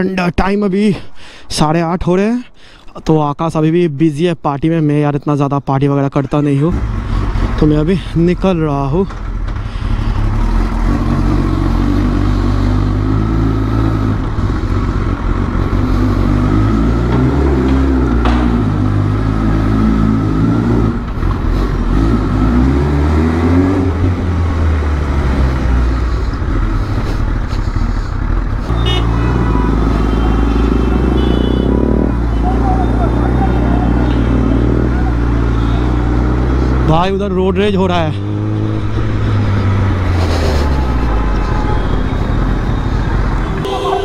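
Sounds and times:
motorcycle engine revving: 9.1s - 41.4s.

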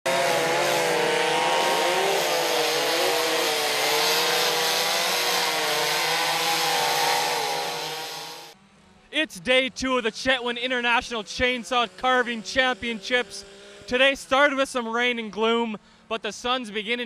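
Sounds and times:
chainsaw cutting log: 0.0s - 8.6s.

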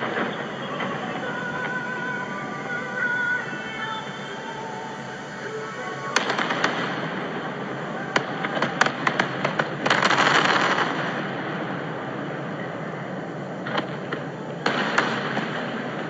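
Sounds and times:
firework shells bursting: 0.0s - 11.3s.

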